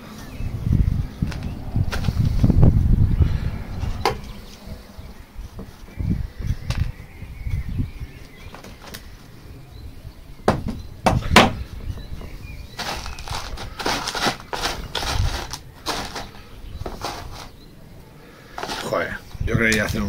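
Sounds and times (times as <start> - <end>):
dull thumps: 10.4 - 15.3.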